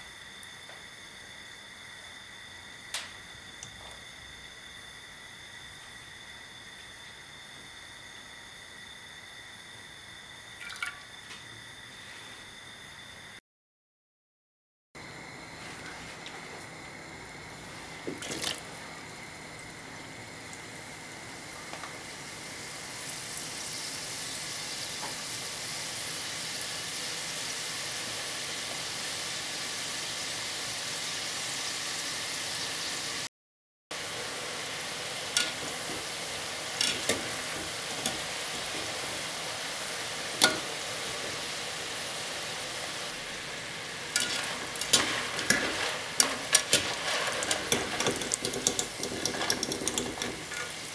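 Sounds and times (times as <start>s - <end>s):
dough deep-frying in hot oil: 0.0s - 13.4s, 15.0s - 33.3s, 33.9s - 50.9s
wire skimmer clinking against pot: 35.3s - 36.0s, 36.8s - 38.7s, 40.4s - 40.7s, 44.1s - 50.9s.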